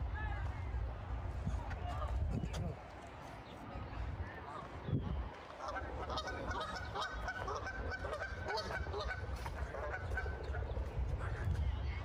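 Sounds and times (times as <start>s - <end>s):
geese honking: 5.6s - 11.4s.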